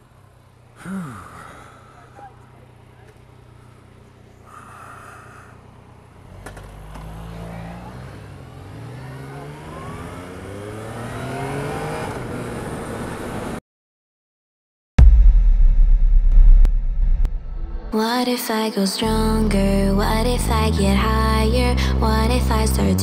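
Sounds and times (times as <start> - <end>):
motorcycle engine accelerating: 0.0 - 13.6.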